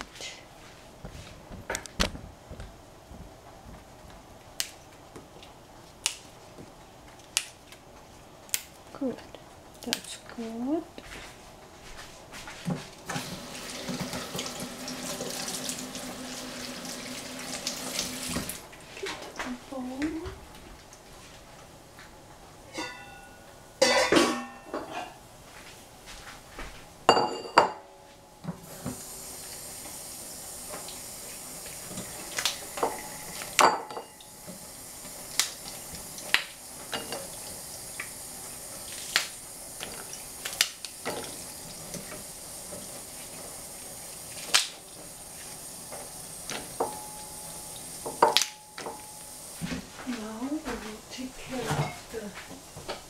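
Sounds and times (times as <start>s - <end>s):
steady hiss: 13.0s - 18.8s, 28.3s - 53.0s.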